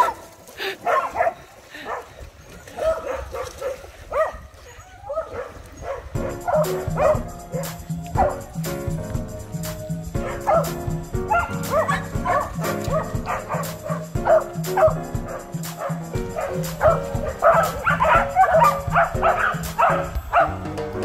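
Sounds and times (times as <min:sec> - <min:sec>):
dogs yipping and whining: 0:04.2 - 0:08.6, 0:10.2 - 0:20.6
background music with bass: 0:06.2 - 0:21.0.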